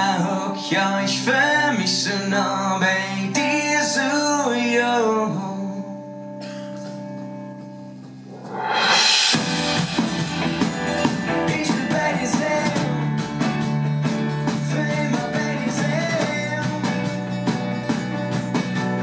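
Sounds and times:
live pop band playing: 0.0 - 5.4, 8.3 - 19.0
drums: 6.4 - 19.0.

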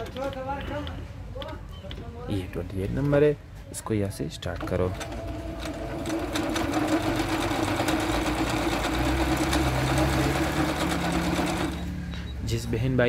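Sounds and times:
sewing machine running: 4.6 - 12.0.

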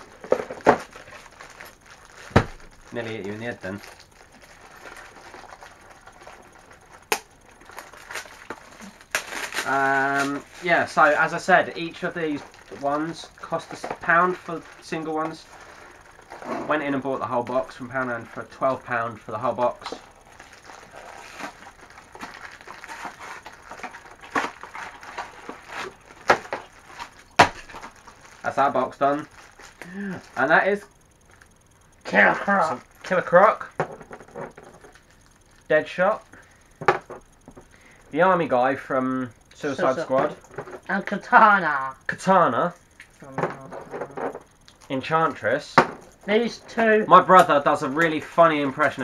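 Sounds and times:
cardboard and foil bags crackling: 0.0 - 37.4.

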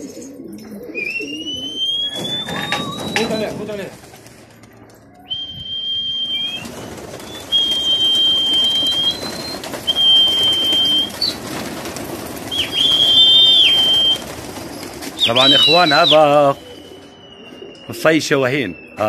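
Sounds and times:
pigeons cooing: 0.0 - 5.6, 6.2 - 18.3
person whistling high notes: 1.0 - 3.5, 5.3 - 11.2, 12.7 - 14.2
pigeon wings flapping: 1.7 - 17.8.

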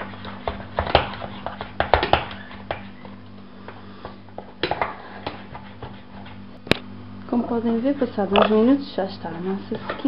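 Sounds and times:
steady low hum: 0.0 - 10.0
wooden spoon scraping metal pot: 4.4 - 6.6, 7.6 - 10.0.

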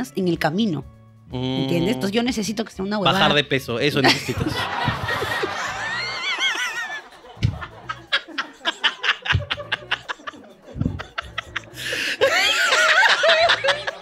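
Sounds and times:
people laughing hard: 4.0 - 14.0.

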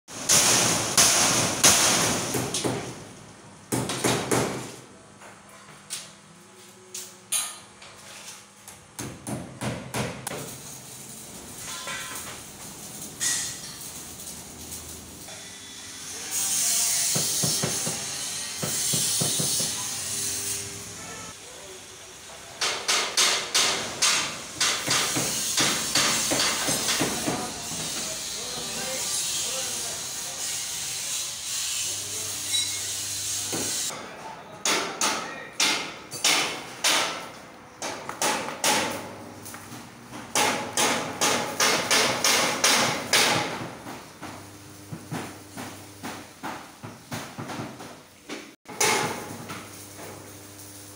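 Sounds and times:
hammer striking metal: 22.6 - 27.5, 34.6 - 39.0, 40.4 - 43.6, 48.7 - 49.3.

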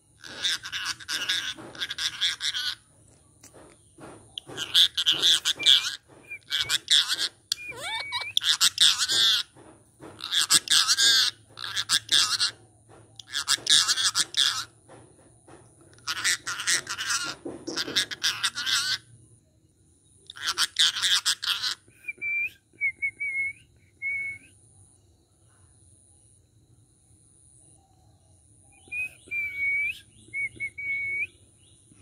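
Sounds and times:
parakeet chattering and squawking: 0.2 - 3.6, 4.4 - 9.6, 10.2 - 12.6, 13.2 - 14.8, 16.0 - 19.1, 20.3 - 22.5.

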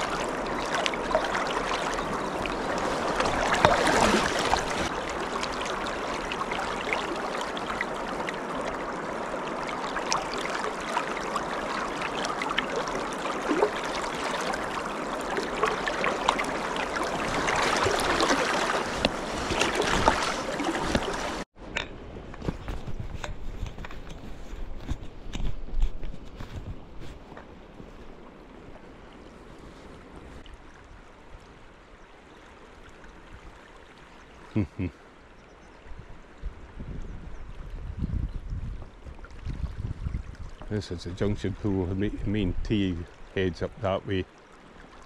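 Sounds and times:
river water rushing and splashing: 0.0 - 21.5, 38.9 - 45.0.

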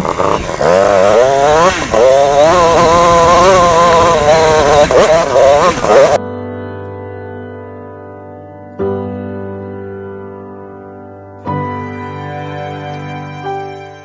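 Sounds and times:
motorcycle engine revving: 0.0 - 6.2.

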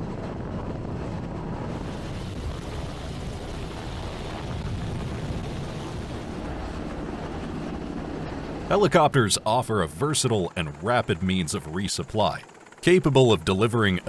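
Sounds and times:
wind roaring at sea: 0.0 - 9.4
helicopter rotor roar: 0.0 - 14.0.

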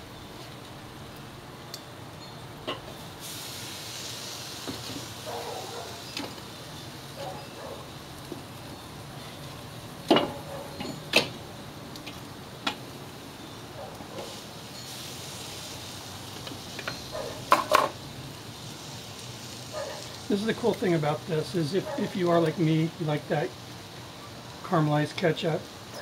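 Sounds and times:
meat sizzling on grill: 0.0 - 26.0
metal tongs clinking on grill grate: 5.0 - 18.0, 19.7 - 23.4.

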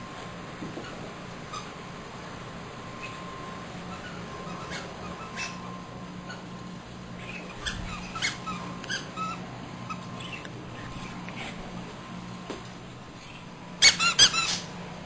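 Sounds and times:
squeaky toy squeaking: 3.9 - 5.6, 7.3 - 10.4, 13.8 - 14.7.

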